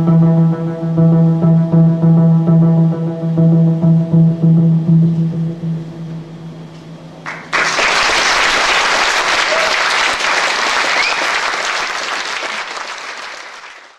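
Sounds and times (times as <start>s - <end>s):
audience applause: 7.3s - 13.9s.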